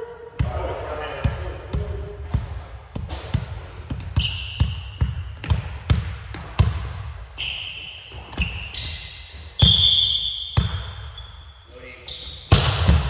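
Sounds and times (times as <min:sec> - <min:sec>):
sneaker squeaks: 0:00.2 - 0:02.2, 0:03.0 - 0:13.0
ball bouncing on wooden floor: 0:00.4 - 0:07.2, 0:12.5 - 0:13.0.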